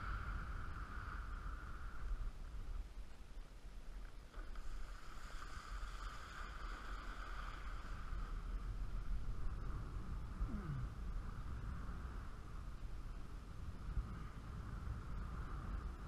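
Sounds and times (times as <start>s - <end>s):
wind rumble on microphone: 0.0s - 16.0s
water rushing under board: 4.3s - 9.6s
steady hum: 9.6s - 14.3s.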